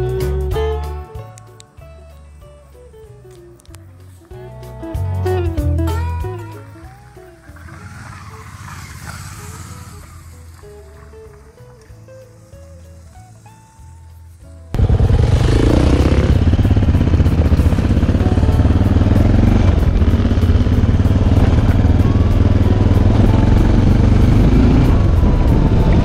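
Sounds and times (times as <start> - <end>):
motorcycle engine running: 5.7 - 26.0.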